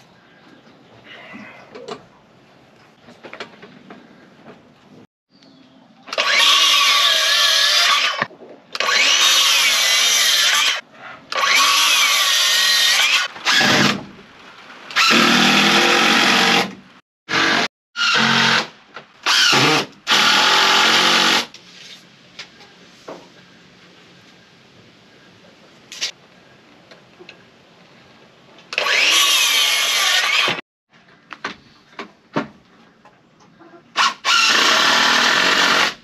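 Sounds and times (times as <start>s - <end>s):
cordless drill driving screws: 6.1s - 10.8s, 28.7s - 30.6s, 34.0s - 36.0s
circular saw cutting wood: 28.8s - 30.6s.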